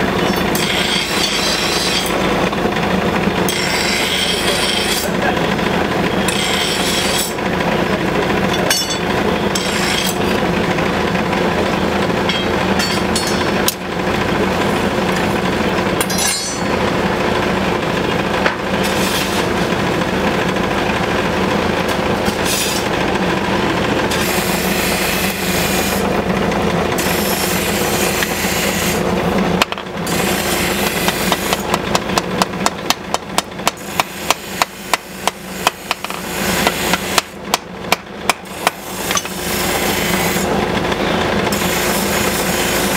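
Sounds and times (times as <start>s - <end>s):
forge blower rushing: 0.0s - 42.9s.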